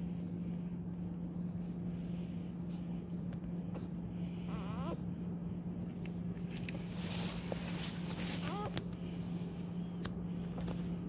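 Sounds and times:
steady low hum: 0.0s - 11.0s
puppy whining: 4.3s - 5.8s, 8.3s - 8.9s.

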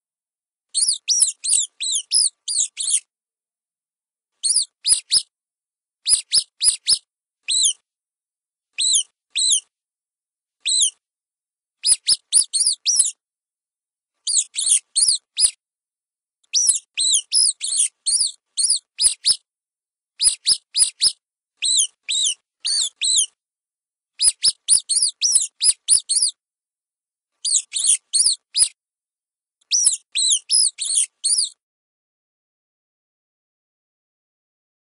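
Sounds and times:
rat squeaking: 0.8s - 3.1s, 4.4s - 5.3s, 6.1s - 7.8s, 8.8s - 9.7s, 10.6s - 11.0s, 11.8s - 13.2s, 14.3s - 15.6s, 16.5s - 19.4s, 20.2s - 23.4s, 24.2s - 26.4s, 27.4s - 28.8s, 29.7s - 31.6s.

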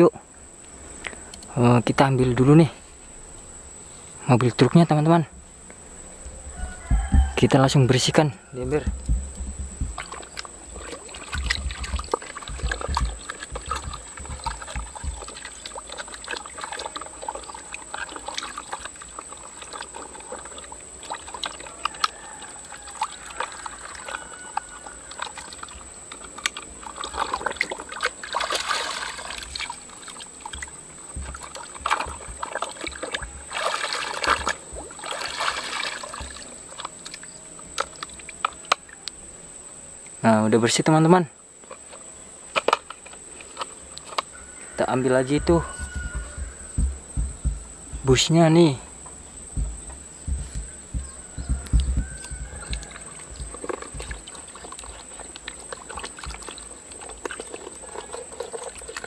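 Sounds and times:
water sloshing and splashing: 8.7s - 38.6s, 49.5s - 59.0s
water trickling: 8.7s - 39.0s, 43.9s - 59.0s.

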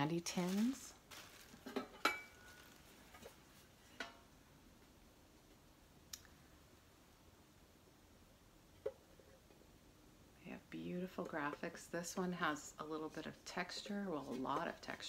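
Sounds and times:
light tick: 6.1s - 6.3s.

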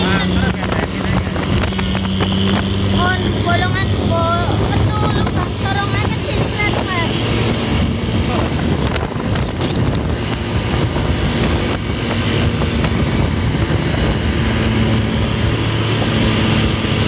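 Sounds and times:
bus engine drone: 0.0s - 17.0s
road rumble: 0.0s - 17.0s
shrill flute-like whistle: 10.2s - 11.1s, 15.0s - 16.5s.

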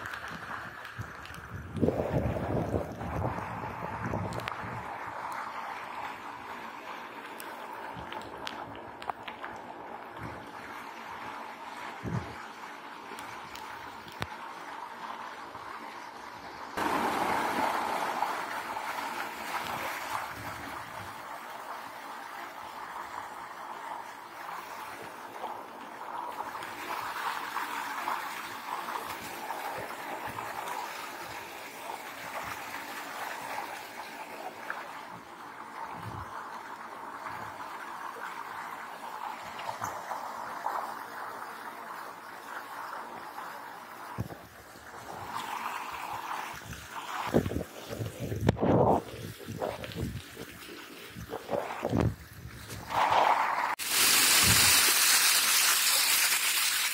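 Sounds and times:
heavy rain pouring: 52.9s - 56.9s.

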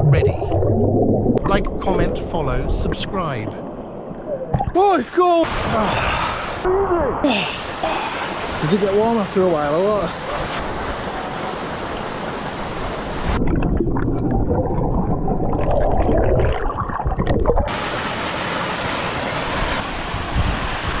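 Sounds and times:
muffled underwater bubbling: 0.0s - 3.1s
waterfall rushing: 5.0s - 13.4s, 17.7s - 21.0s.

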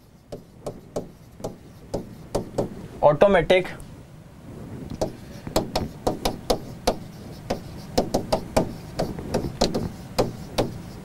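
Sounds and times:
pen knocking on writing board: 0.3s - 2.8s, 5.0s - 11.0s.

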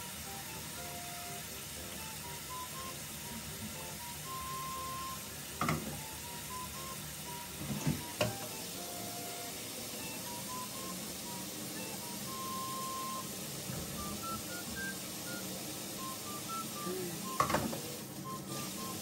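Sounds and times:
light background music: 0.0s - 19.0s
steady hiss: 0.0s - 19.0s
dishes clinking in sink: 5.6s - 6.0s, 17.3s - 17.9s.

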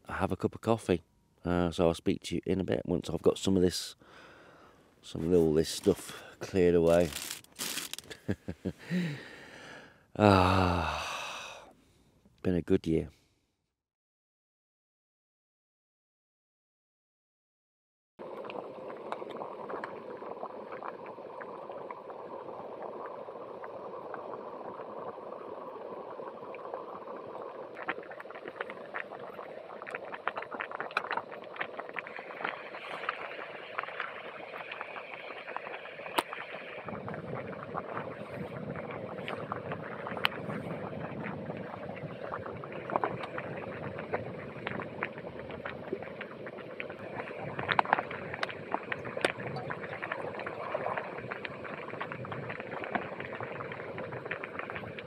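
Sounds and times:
water bubbling: 18.2s - 55.0s.

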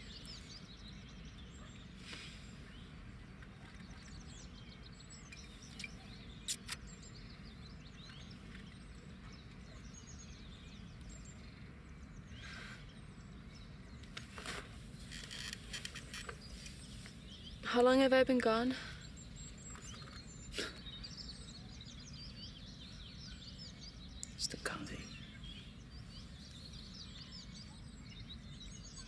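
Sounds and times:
small birds chirping: 0.0s - 29.0s
rustling and handling noise: 14.0s - 17.3s.

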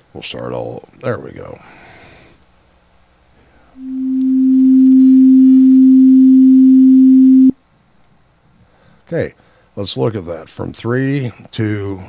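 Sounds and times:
steady sine-wave tone: 3.8s - 7.6s.

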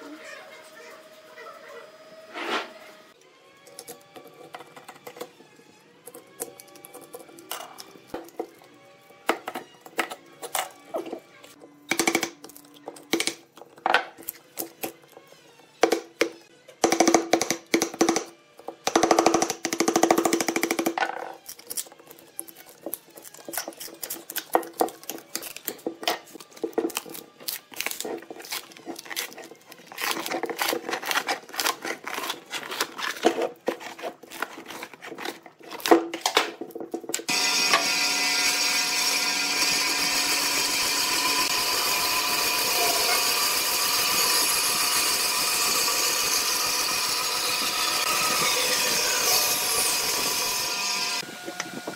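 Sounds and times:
knife slitting tape: 21.4s - 36.4s
band saw running: 37.1s - 51.9s.

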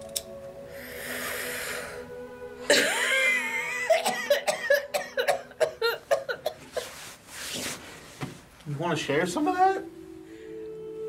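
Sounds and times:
quiet background music: 0.0s - 11.0s
person coughing: 2.7s - 6.8s.

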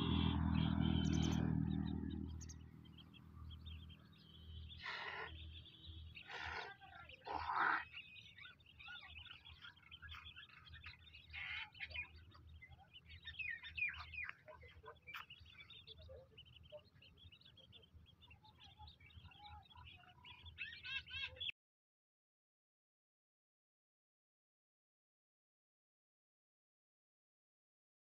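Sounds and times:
chicks peeping: 0.0s - 21.5s.

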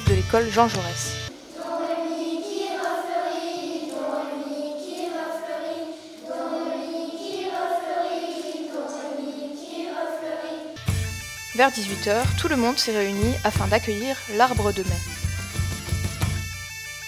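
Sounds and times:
children singing together: 1.3s - 10.8s.

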